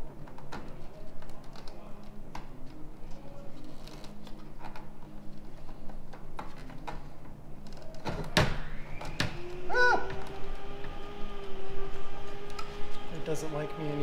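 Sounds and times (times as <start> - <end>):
low hum: 7.5 - 14.0.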